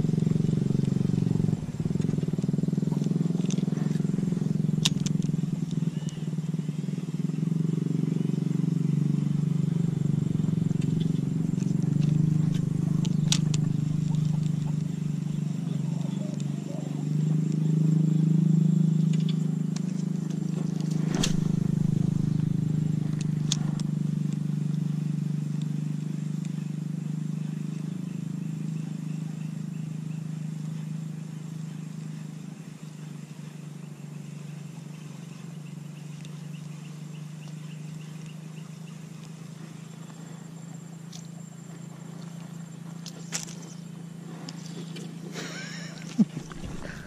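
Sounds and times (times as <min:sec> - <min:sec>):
low motor drone: 0:00.0 - 0:47.0
sharp clicks: 0:00.2 - 0:06.2, 0:10.3 - 0:14.9.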